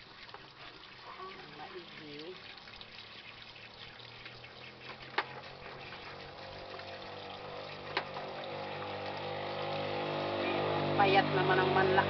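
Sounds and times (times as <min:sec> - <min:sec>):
tap water running into sink: 0:00.0 - 0:12.0
low motor hum: 0:03.0 - 0:12.0.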